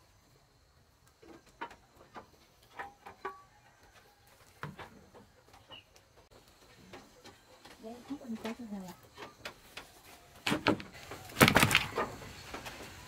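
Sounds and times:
fishing net clicks and rustles: 10.4 - 13.0.

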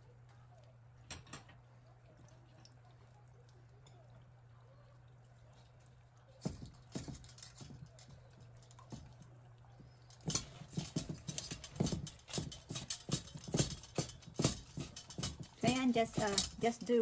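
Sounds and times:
chicken bubbling in oil: 0.0 - 10.1
knocks on metal bowls: 10.2 - 16.9.

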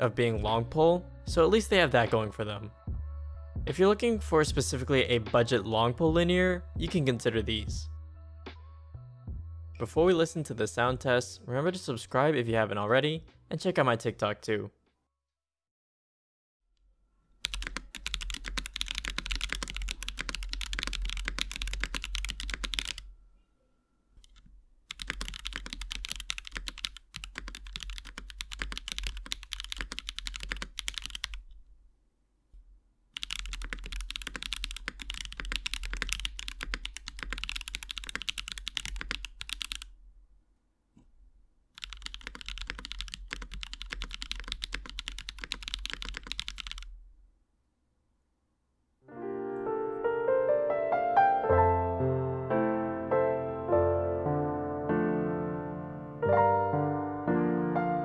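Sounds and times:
mechanical keyboard typing: 17.4 - 23.1, 24.2 - 31.5, 33.2 - 39.9, 41.8 - 46.9.

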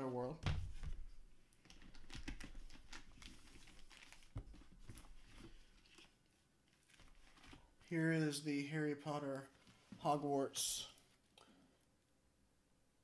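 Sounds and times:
paper and plastic crinkling: 1.7 - 7.7.

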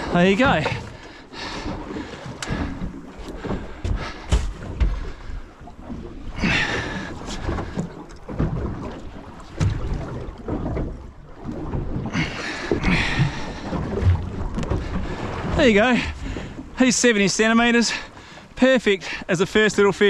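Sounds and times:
water washing against hull: 0.0 - 20.0
knocks and thumps: 3.4 - 5.2.

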